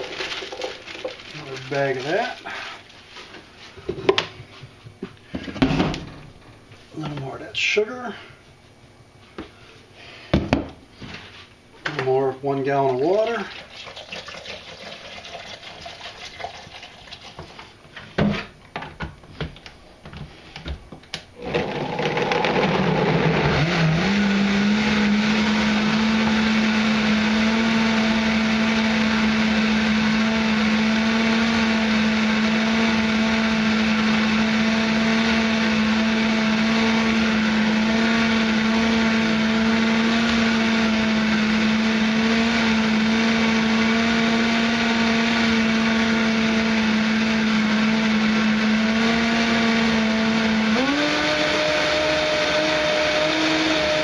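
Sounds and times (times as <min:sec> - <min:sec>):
blender motor whining: 0:00.0 - 0:02.9, 0:21.4 - 0:54.0.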